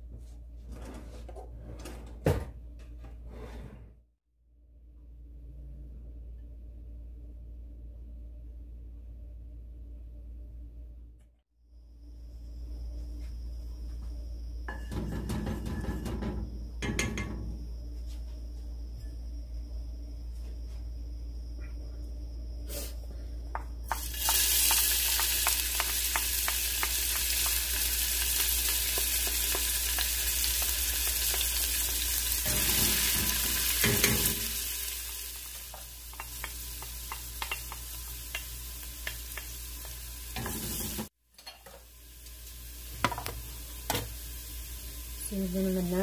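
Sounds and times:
onion sizzling in hot oil: 0:23.8 - 0:46.0.

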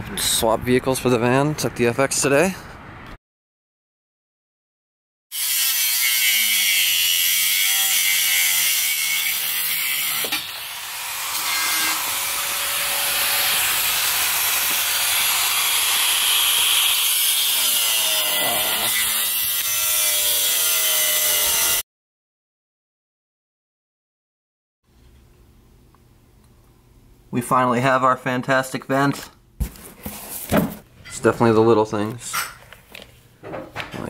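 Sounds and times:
power saw cutting: 0:05.3 - 0:21.8.

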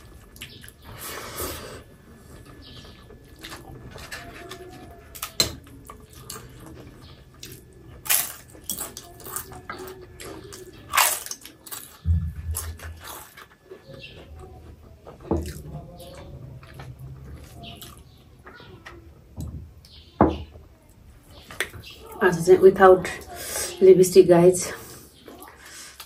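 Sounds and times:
chewing and wet smacking: 0:00.0 - 0:00.9, 0:02.3 - 0:19.0.

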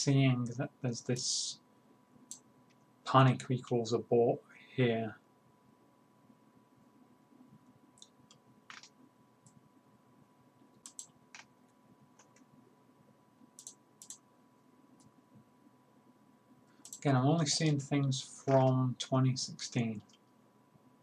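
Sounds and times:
faint steady hum: 0:00.0 - 0:21.0
mouse and keyboard clicks: 0:08.0 - 0:09.0, 0:10.8 - 0:11.5, 0:13.6 - 0:14.2.

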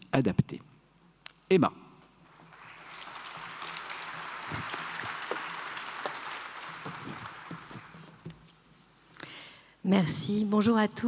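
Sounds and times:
audience applauding: 0:02.2 - 0:08.3.

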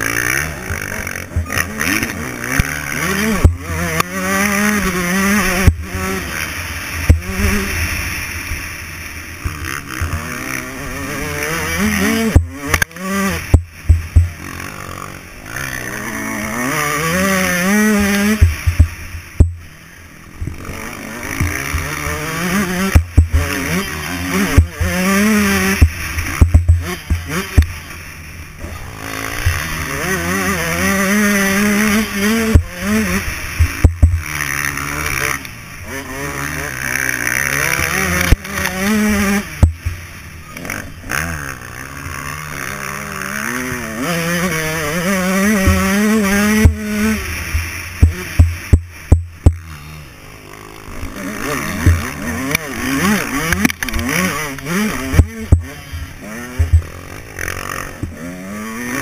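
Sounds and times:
dirt bike engine revving: 0:00.0 - 0:59.0
sharp knocks: 0:25.8 - 0:27.7, 0:33.6 - 0:34.2, 0:48.0 - 0:49.6, 0:51.8 - 0:52.1.

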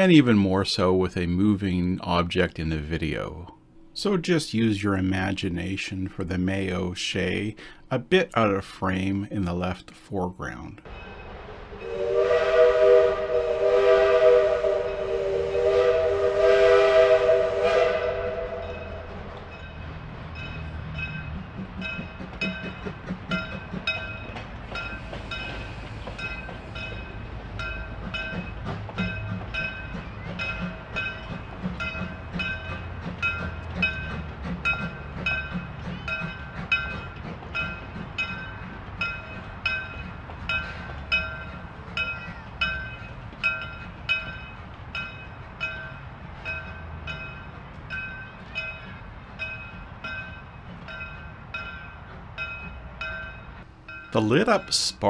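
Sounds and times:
steam locomotive whistle chord: 0:10.9 - 0:19.7
steam locomotive exhaust chuffing: 0:10.9 - 0:55.0.

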